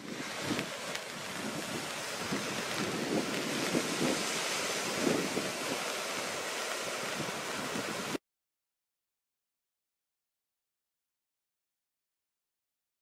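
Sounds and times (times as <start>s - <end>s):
surf washing over sand and pebbles: 0.0s - 8.2s.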